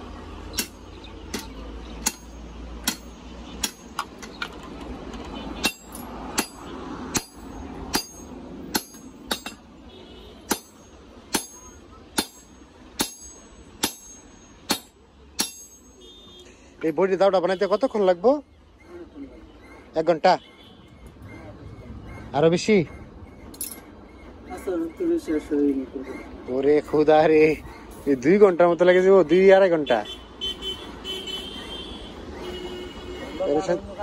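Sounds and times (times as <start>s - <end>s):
hammer ringing on anvil: 0.6s - 4.0s, 5.6s - 9.6s, 10.5s - 16.0s.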